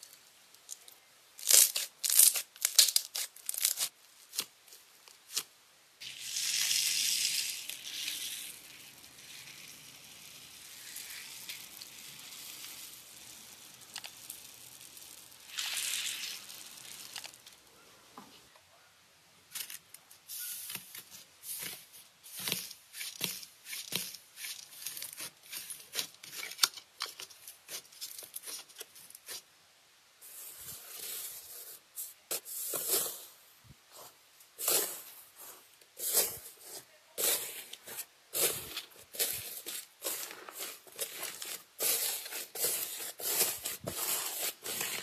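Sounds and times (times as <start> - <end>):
foam bead slime popping: 1.4 - 4.4, 6.0 - 17.7.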